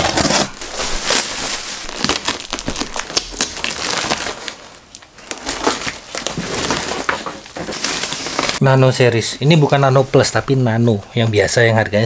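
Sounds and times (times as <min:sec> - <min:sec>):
plastic wrapping crinkling: 0:00.0 - 0:08.6
cardboard scraping and crackling: 0:05.3 - 0:08.6.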